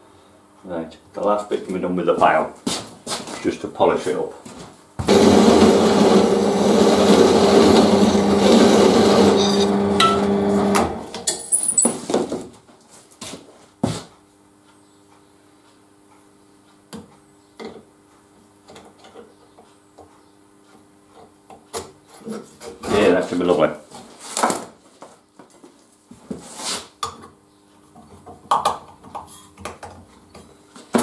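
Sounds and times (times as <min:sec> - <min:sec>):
drill press motor humming: 0:05.1 - 0:11.2.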